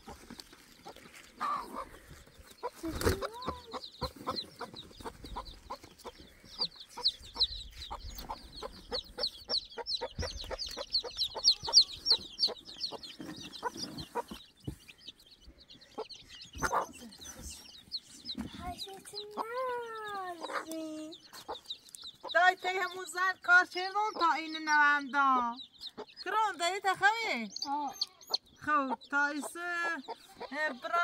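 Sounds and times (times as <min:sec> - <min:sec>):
chicks chirping: 0:00.0 - 0:31.0
hen clucking: 0:00.0 - 0:31.0.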